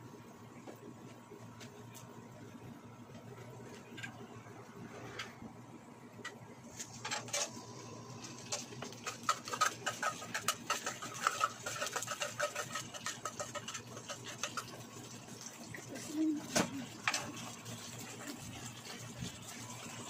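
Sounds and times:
can opener clicking and scraping: 8.5s - 14.7s.

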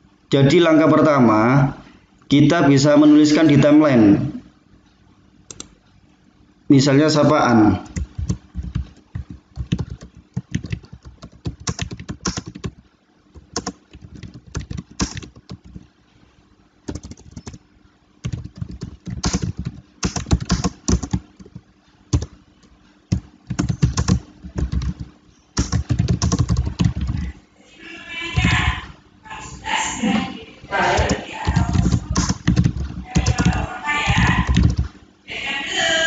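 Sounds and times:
keyboard typing clicks: 5.5s - 5.8s, 7.8s - 15.9s, 16.9s - 17.6s, 18.2s - 27.3s, 31.0s - 34.9s.

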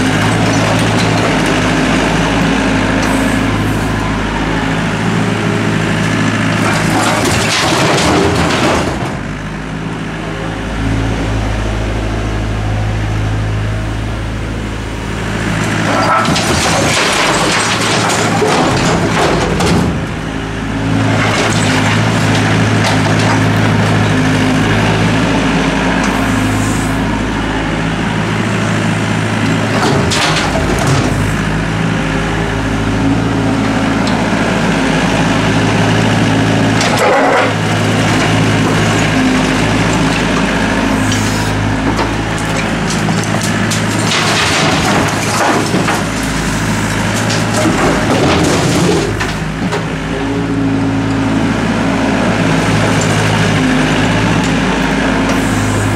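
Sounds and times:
rubble clattering and scraping: 0.0s - 1.8s, 6.5s - 9.4s, 15.6s - 20.3s, 20.9s - 24.1s, 29.5s - 31.3s, 36.5s - 50.1s
excavator diesel engine running: 0.0s - 55.9s.

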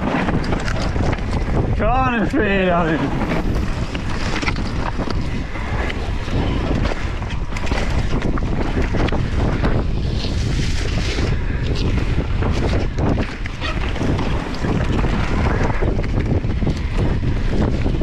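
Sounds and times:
bike rattling over rocky dirt: 0.0s - 18.0s
wind rushing over microphone: 0.0s - 18.0s.

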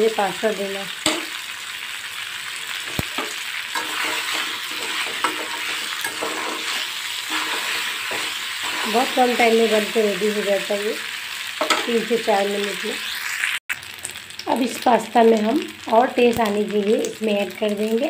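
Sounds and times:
pasta sizzling in a pan: 0.0s - 18.0s
metal spoon scraping a pan: 1.0s - 1.4s, 2.7s - 10.0s, 11.6s - 12.0s.

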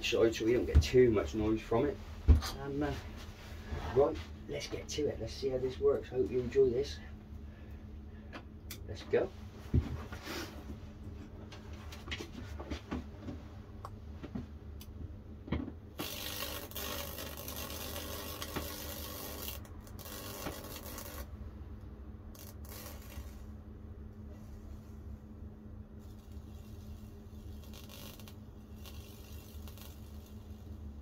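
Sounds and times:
steady low hum: 0.0s - 31.0s
electric arc hissing: 16.0s - 21.3s, 22.3s - 23.6s, 26.0s - 30.8s.

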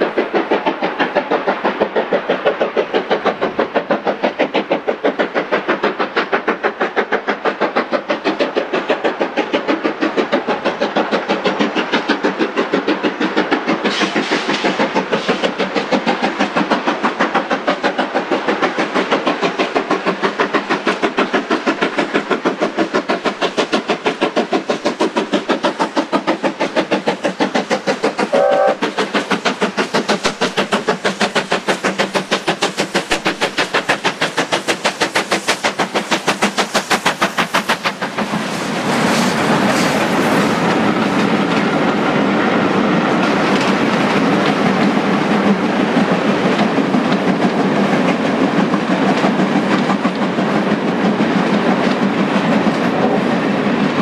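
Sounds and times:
steam hiss: 0.0s - 54.0s
steam locomotive exhaust chuffing: 0.0s - 54.0s
locomotive whistle toot: 28.3s - 28.8s.

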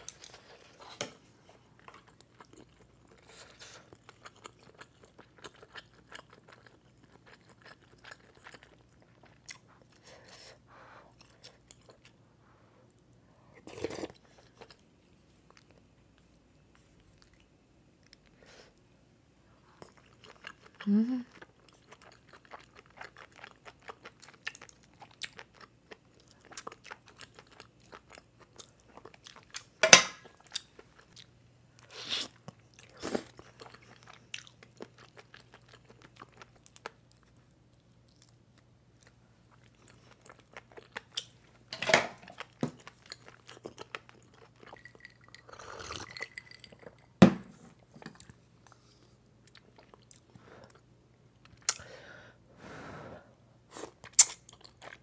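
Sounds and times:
close chewing with mouth clicks: 1.8s - 10.1s, 11.1s - 12.2s, 19.6s - 41.6s, 42.3s - 47.0s.

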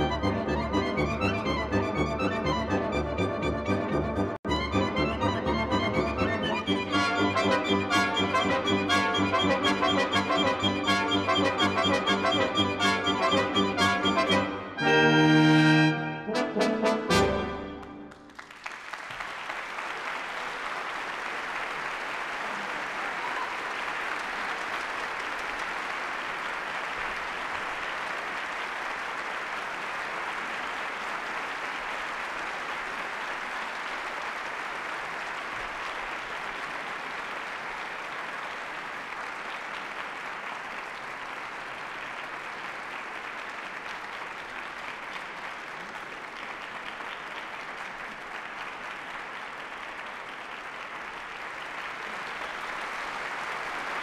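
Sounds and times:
audience applauding: 0.0s - 14.7s, 16.8s - 54.0s
orchestra final chord: 13.2s - 18.1s.

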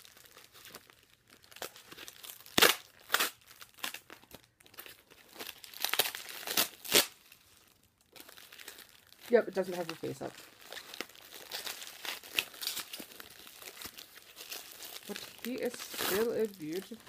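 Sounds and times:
packing wrap crinkling and tearing: 0.0s - 17.0s.

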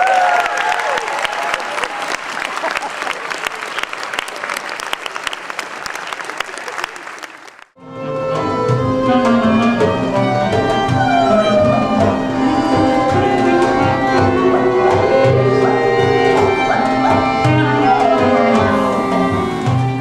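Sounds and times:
fiddle melody: 7.8s - 20.0s
folk band playing upbeat tune: 8.2s - 20.0s
hand-drum beat: 8.3s - 20.0s.

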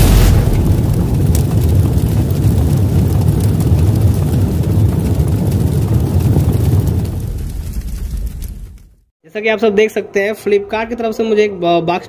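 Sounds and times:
loud deep rumble: 0.0s - 9.0s.

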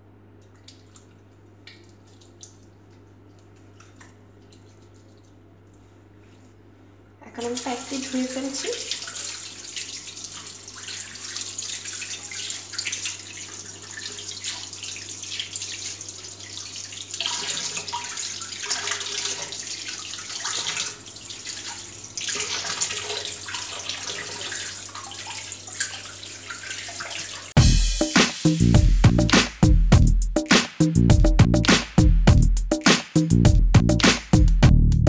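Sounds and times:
tap water running into sink: 7.4s - 29.2s
hands rubbing and rinsing: 28.0s - 29.7s, 30.4s - 32.0s, 32.7s - 34.4s.

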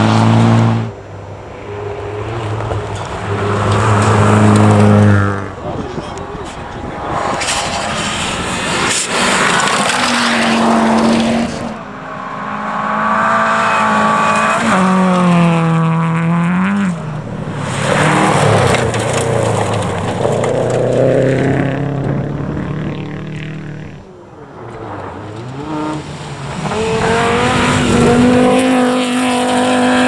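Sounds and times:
rally car passing by: 0.0s - 30.0s
tyre and gravel noise: 1.6s - 11.8s, 16.6s - 28.7s
rally car engine revving: 2.1s - 30.0s.

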